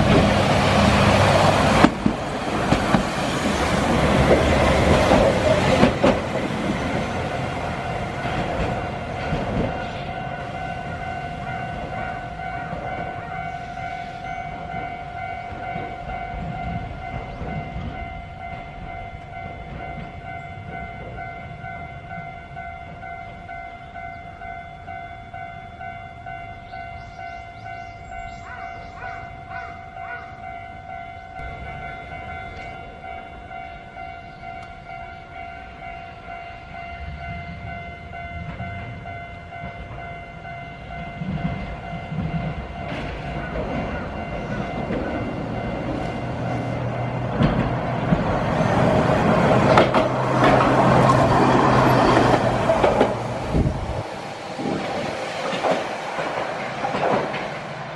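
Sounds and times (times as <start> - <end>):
tram rumbling on track: 0.0 - 57.9
level crossing alarm ringing: 6.6 - 47.3.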